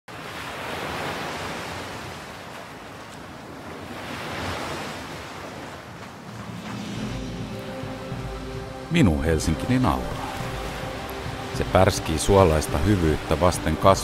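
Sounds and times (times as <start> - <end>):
sea waves washing in: 0.1 - 14.0
low sustained music notes: 6.2 - 14.0.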